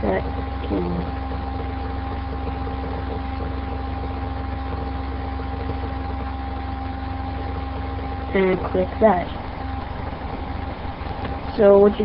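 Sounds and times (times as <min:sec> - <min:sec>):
background hum and hiss: 0:00.0 - 0:12.0
constant tones: 0:00.0 - 0:12.0.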